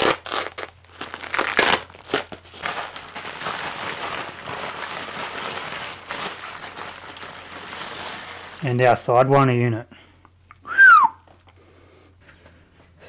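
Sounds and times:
packaging crinkling: 0.0 - 9.2.

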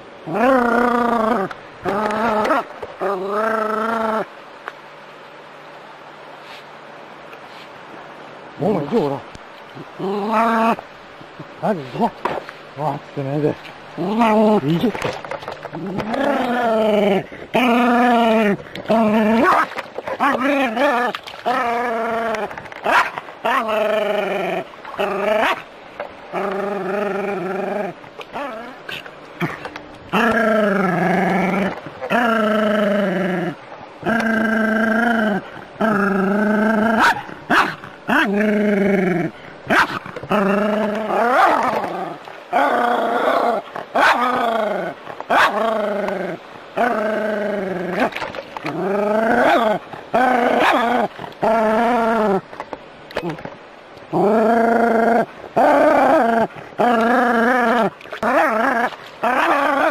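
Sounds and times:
dog whining: 54.4 - 59.9.

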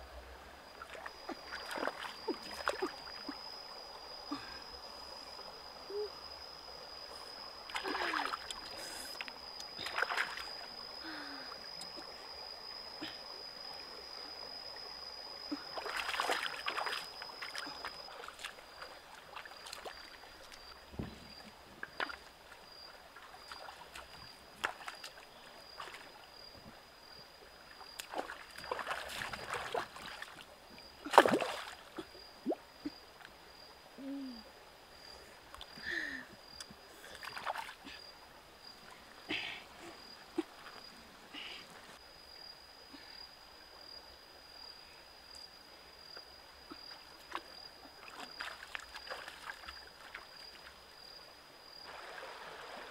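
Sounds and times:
faint stream flowing: 0.0 - 52.9
water splashing and sloshing: 0.6 - 5.4, 7.0 - 12.3, 13.0 - 33.4, 35.0 - 42.1, 46.2 - 52.9
sharp water splash: 15.8 - 17.1, 28.0 - 30.3, 31.1 - 32.6.

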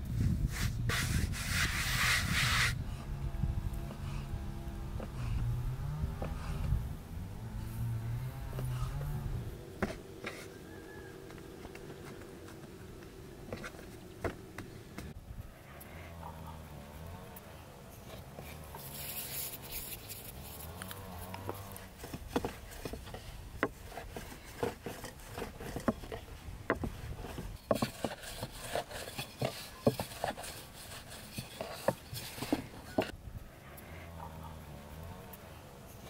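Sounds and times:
rolling pin rolling dough on board: 22.0 - 33.1.

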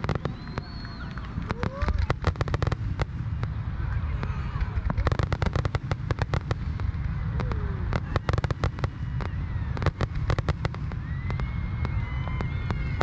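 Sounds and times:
fireworks crackling pops: 0.0 - 13.0
low rumble: 0.0 - 13.0.

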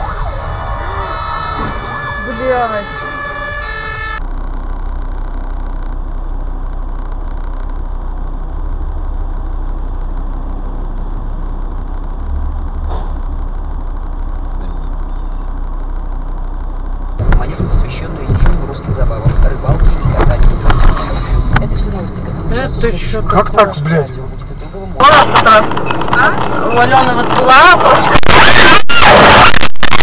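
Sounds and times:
siren: 0.0 - 4.2, 28.1 - 30.0
car engine idling: 0.0 - 27.8.

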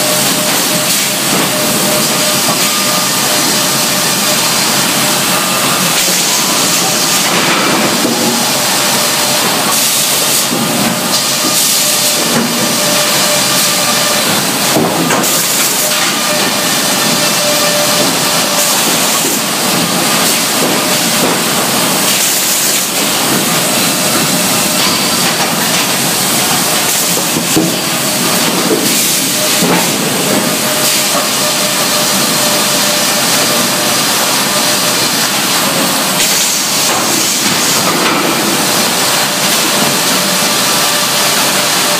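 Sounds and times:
knocks and clanks of boards: 12.2 - 12.7, 14.7 - 16.2, 20.6 - 21.4, 26.8 - 27.8.

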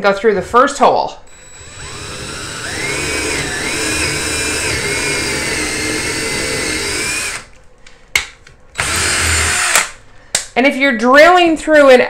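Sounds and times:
cordless drill boring wood: 1.3 - 7.5, 8.8 - 10.0.

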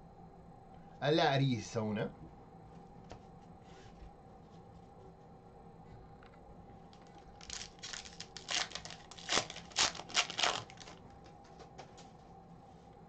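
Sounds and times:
foil wrapper tearing and crinkling: 7.0 - 11.0.

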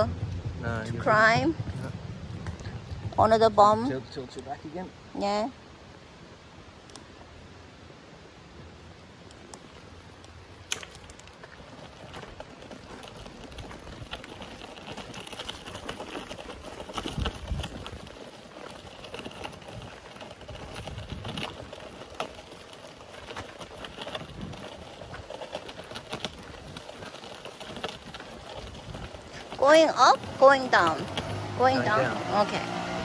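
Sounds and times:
wheelchair rolling over dry leaves: 0.0 - 6.3, 7.2 - 33.0
wheelchair frame rattling: 10.7 - 33.0.

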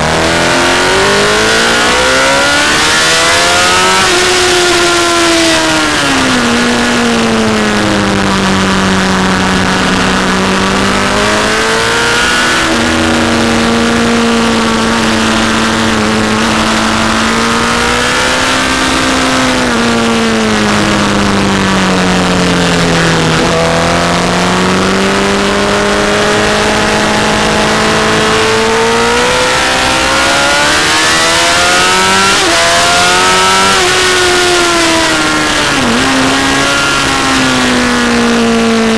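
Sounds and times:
motorcycle engine revving: 0.0 - 38.9.

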